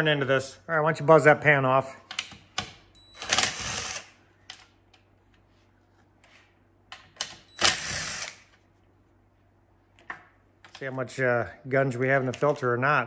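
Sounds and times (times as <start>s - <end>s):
cordless drill spinning bolts: 3.2s - 4.1s, 7.6s - 8.4s.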